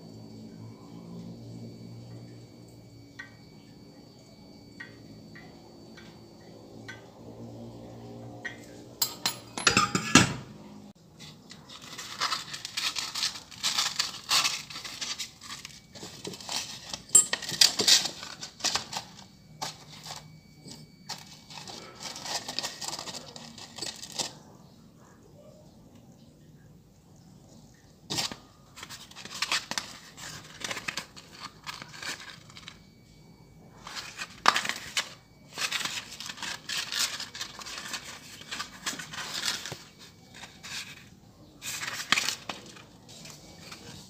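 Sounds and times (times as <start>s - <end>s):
metal parts clattering: 9.0s - 10.4s, 11.7s - 20.2s, 21.1s - 24.3s, 33.8s - 41.0s.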